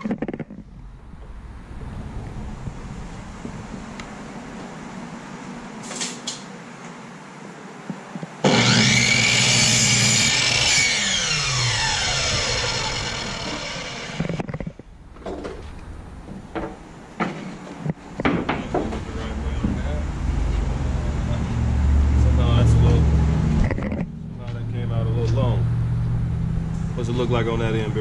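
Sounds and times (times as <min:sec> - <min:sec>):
miter saw cutting wood: 0:08.4 - 0:14.6.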